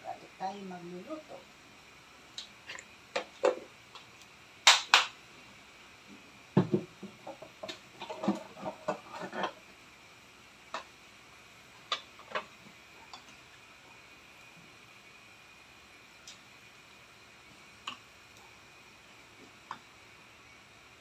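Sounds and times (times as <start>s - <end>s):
clicks and knocks at stove: 6.6s - 9.6s.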